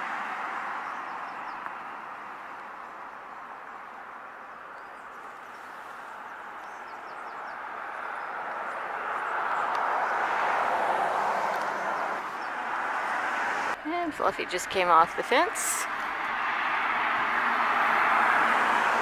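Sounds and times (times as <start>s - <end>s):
vehicle passing: 0.0s - 19.0s.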